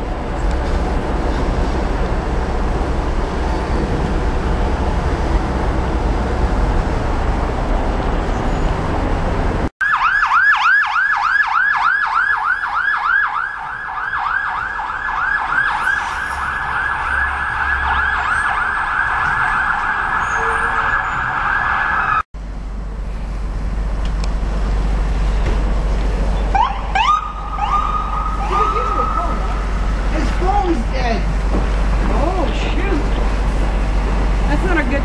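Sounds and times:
low traffic rumble: 0.0s - 35.0s
siren yelping: 9.8s - 22.2s, 26.5s - 29.6s.

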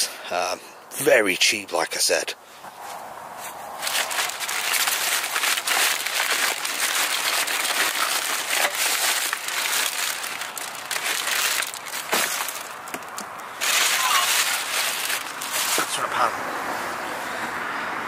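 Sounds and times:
plastic bags rustling: 3.7s - 16.1s.

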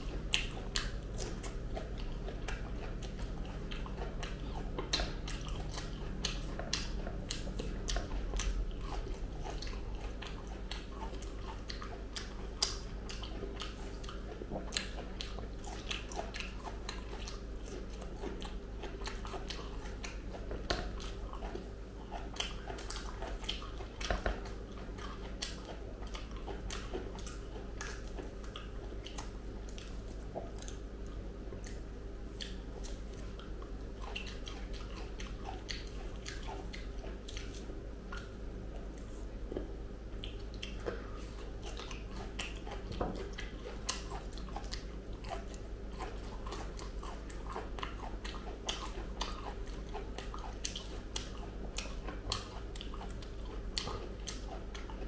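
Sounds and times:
chewing and biting fruit: 0.0s - 55.0s
steady low hum: 0.0s - 55.0s
wet mouth clicks and smacks: 0.2s - 8.6s, 25.2s - 41.0s.

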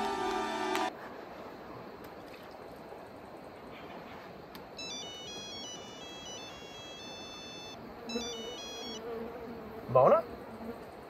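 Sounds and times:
phone ringtone melody: 4.8s - 9.0s.

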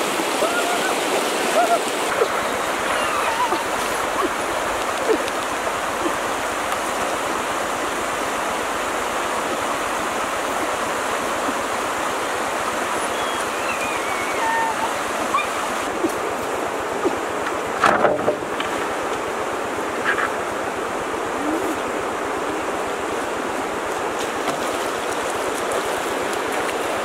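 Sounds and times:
river rushing over rocks: 0.0s - 27.0s
faint high chirps: 13.0s - 15.5s.

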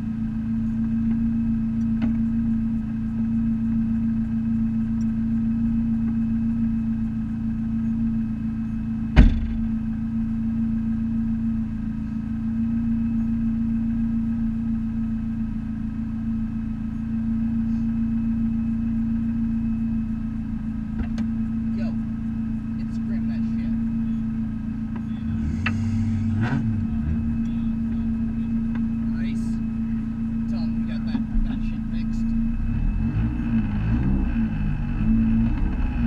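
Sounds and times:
car engine idling: 0.0s - 36.0s
sharp knock: 9.2s - 9.6s.

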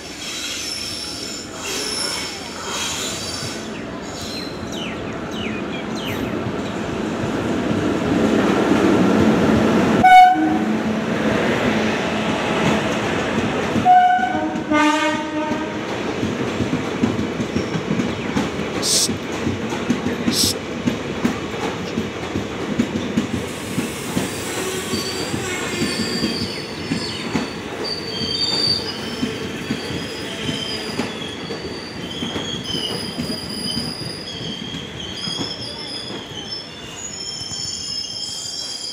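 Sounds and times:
wheels squealing under braking: 0.2s - 4.4s, 23.6s - 38.9s
train wheels rumbling over rail joints: 10.8s - 36.6s.

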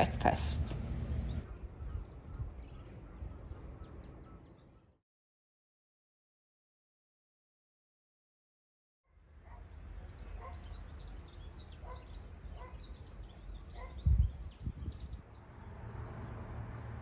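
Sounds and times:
wind rumble on microphone: 0.0s - 4.7s, 11.2s - 17.0s
small birds chirping and singing: 0.4s - 5.0s, 9.4s - 17.0s.

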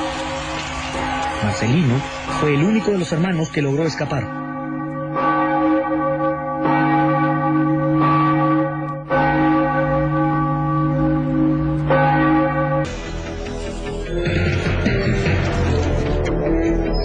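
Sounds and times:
music: 0.0s - 4.3s, 12.8s - 17.0s
church bell tolling: 0.0s - 13.4s.

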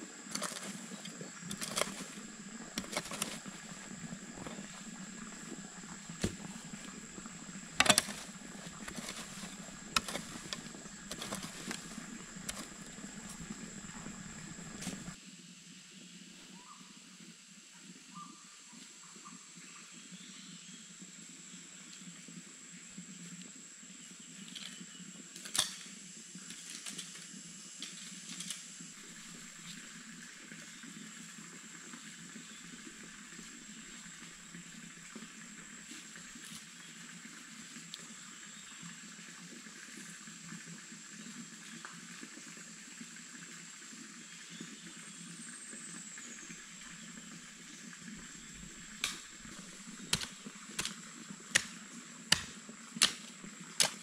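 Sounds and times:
sharp knocks and clicks: 7.8s - 15.2s.

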